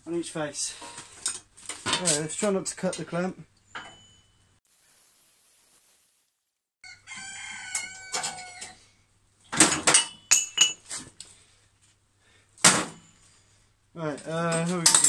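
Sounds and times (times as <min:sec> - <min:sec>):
metallic ringing tones: 0:03.6 - 0:04.6, 0:10.0 - 0:10.8
metal tongs clanking: 0:09.8 - 0:10.8.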